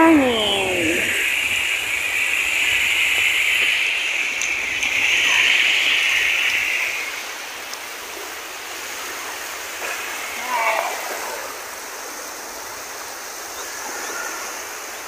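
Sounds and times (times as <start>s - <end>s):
shallow water washing over sand: 0.2s - 15.0s.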